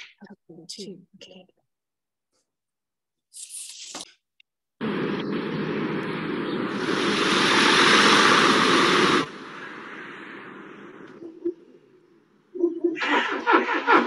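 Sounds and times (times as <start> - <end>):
loud steady rushing noise: 4.8 - 11.2.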